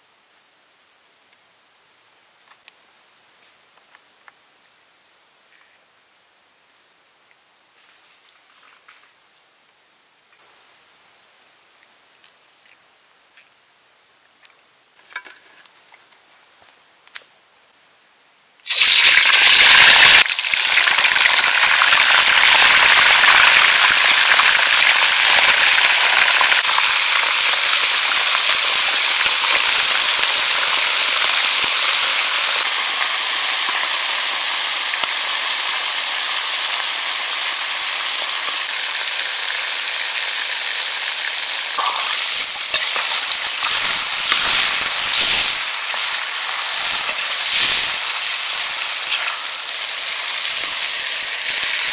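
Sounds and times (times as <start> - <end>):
meat sizzling in hot oil: 18.6 - 51.9.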